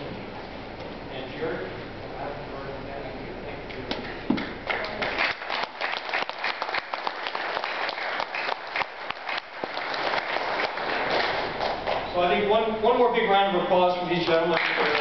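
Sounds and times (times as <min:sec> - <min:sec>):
audience applauding: 0:04.4 - 0:12.1, 0:14.5 - 0:15.0.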